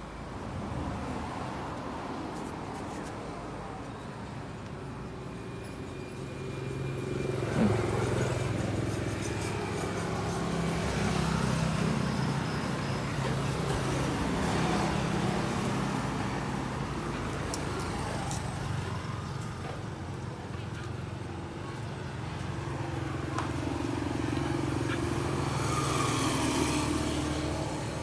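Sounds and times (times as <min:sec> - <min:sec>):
vehicle engine humming: 0:05.8 - 0:28.0.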